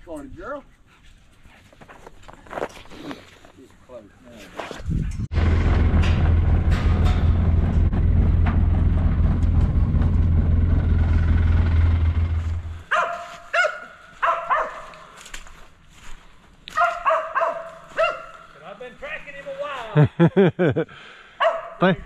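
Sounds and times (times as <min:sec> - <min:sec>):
steady low rumble: 0:05.0 - 0:12.9
dog barking: 0:12.9 - 0:15.0, 0:16.7 - 0:18.5, 0:21.4 - 0:21.8.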